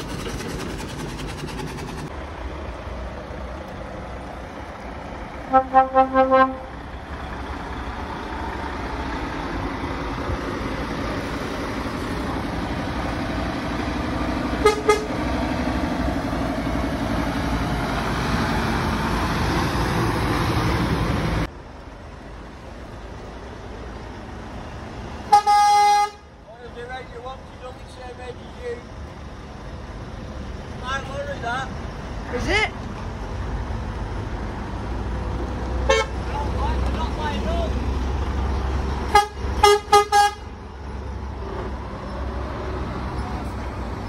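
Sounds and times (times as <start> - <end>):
truck engine and tyres approaching: 0.0 - 44.0
truck horn toots: 5.5 - 6.8, 14.6 - 15.2, 25.3 - 26.3, 35.9 - 36.2, 39.1 - 40.5.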